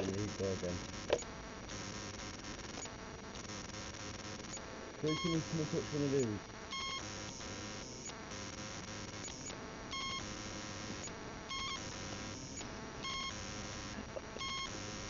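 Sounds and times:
static hiss: 0:00.0 - 0:15.0
short high beeps: 0:05.0 - 0:05.6.

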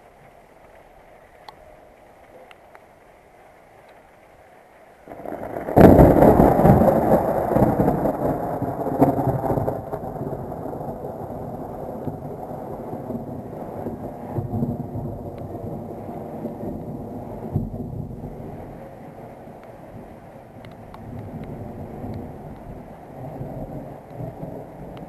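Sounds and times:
thunder crack and rumble: 0:05.1 - 0:25.0.

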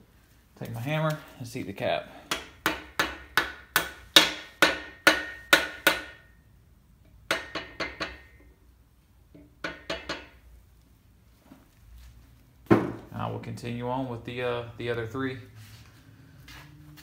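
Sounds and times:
hammer striking metal: 0:02.3 - 0:06.4, 0:07.3 - 0:08.4, 0:09.6 - 0:10.4.

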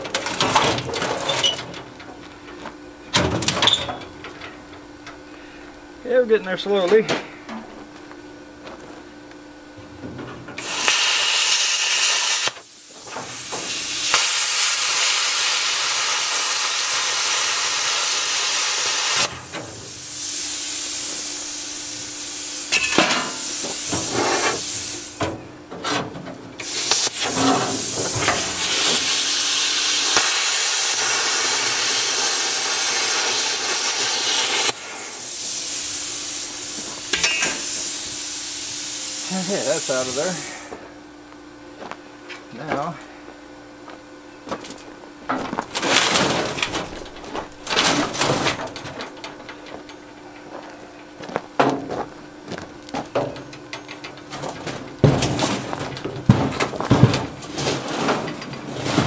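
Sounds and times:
plasma cutter hissing: 0:10.6 - 0:25.2, 0:26.6 - 0:40.7.

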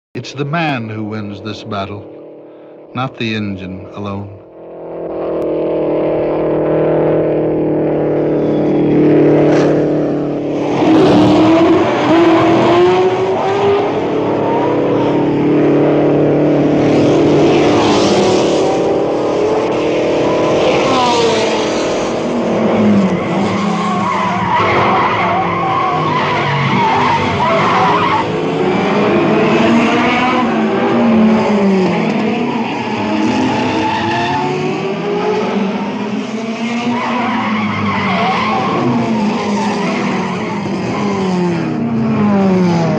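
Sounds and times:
racing car engine running hard: 0:04.0 - 0:42.9
tyre squeals: 0:22.8 - 0:28.5.

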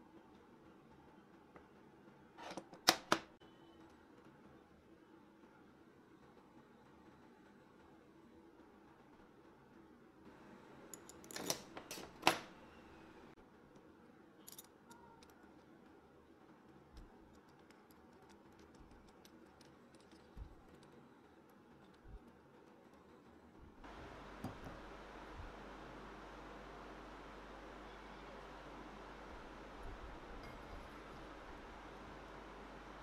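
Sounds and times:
faint room hiss: 0:00.0 - 0:33.0
metal clamp clinking: 0:10.9 - 0:12.4.

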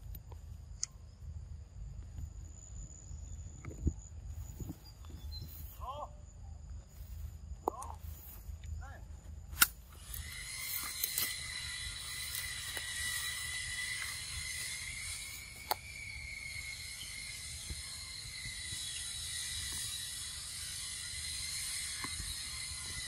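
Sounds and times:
sharp clicks: 0:00.0 - 0:01.0, 0:15.5 - 0:15.9
insects buzzing: 0:00.0 - 0:23.0.

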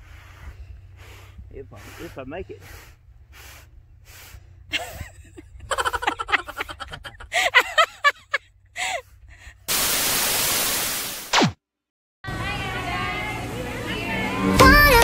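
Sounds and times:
television static hiss: 0:09.7 - 0:11.2.

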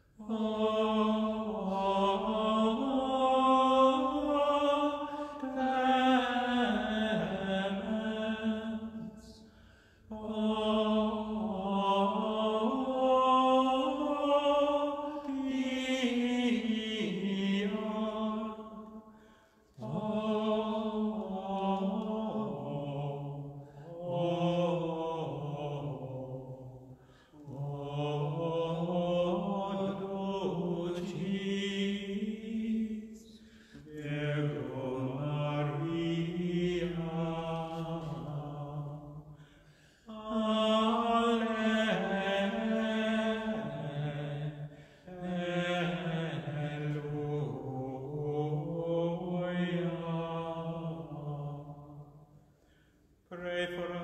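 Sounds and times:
man breathing: 0:05.1 - 0:05.4, 0:09.4 - 0:10.1, 0:19.1 - 0:19.8, 0:26.9 - 0:27.4, 0:33.4 - 0:33.9, 0:39.3 - 0:40.1, 0:44.7 - 0:45.1, 0:52.4 - 0:53.2.

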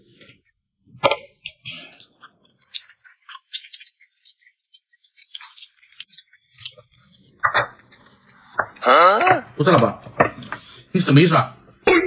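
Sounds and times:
chewing: 0:01.4 - 0:09.4.

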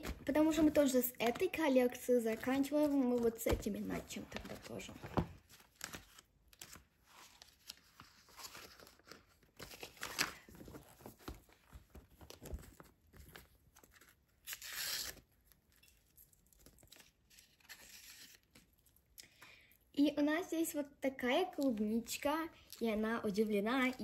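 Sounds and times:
paper sheets rustling: 0:00.0 - 0:14.2
notebook pages turning: 0:02.3 - 0:14.2.

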